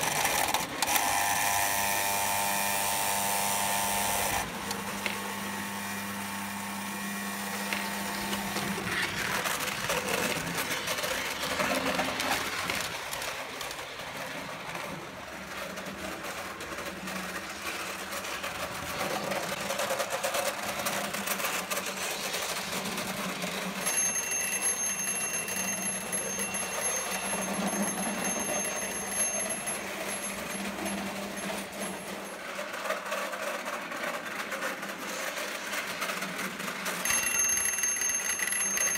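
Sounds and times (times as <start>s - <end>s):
toy train wheels clattering: 7.6s - 38.9s
electric warning bell ringing: 23.8s - 32.6s, 37.0s - 38.9s.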